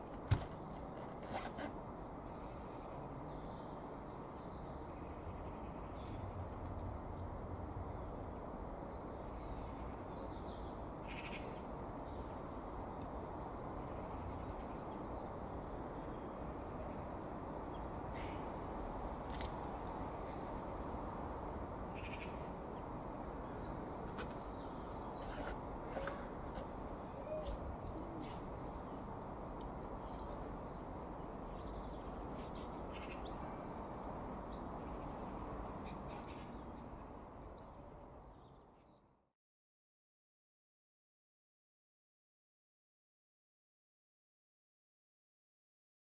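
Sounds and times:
outdoor background noise: 0:00.0 - 0:39.3
faint bird chirps: 0:25.9 - 0:33.7.

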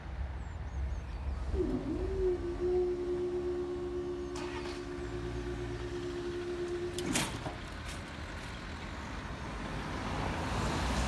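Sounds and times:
road traffic engines rumbling: 0:00.0 - 0:11.0
crossing alarm steady tone: 0:01.5 - 0:07.7.

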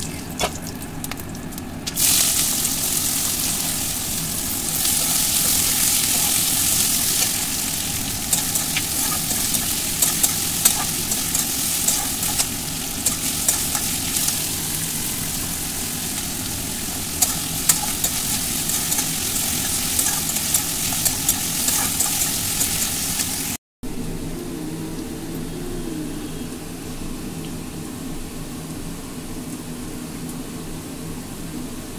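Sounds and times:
onions sizzling in oil: 0:00.0 - 0:23.6
metal spatula scraping: 0:02.2 - 0:23.5.

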